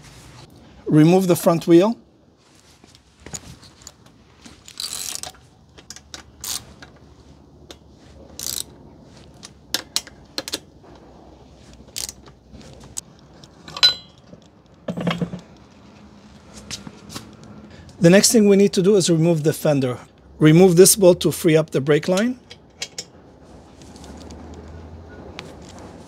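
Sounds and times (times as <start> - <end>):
ratchet clicks: 4.7 - 6.6, 8.4 - 8.7
metallic clinks: 13.7 - 14.4.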